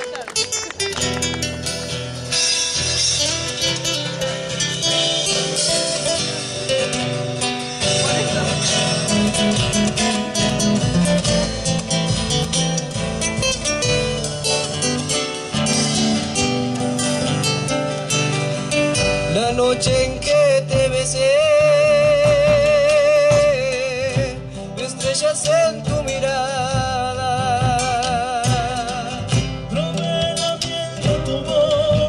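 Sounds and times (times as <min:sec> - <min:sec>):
acoustic guitars strumming: 0:00.0 - 0:32.0
bass drum beat: 0:01.1 - 0:32.0.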